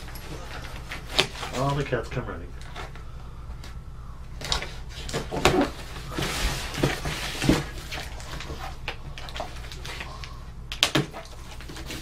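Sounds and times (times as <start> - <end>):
packing tape tearing: 0.6 - 1.8.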